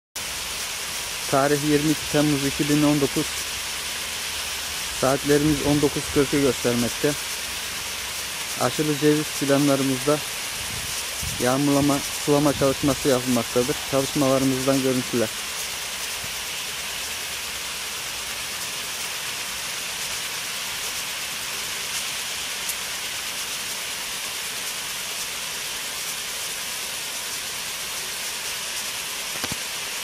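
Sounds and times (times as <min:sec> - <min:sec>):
sprinklers hissing: 0:00.2 - 0:30.0.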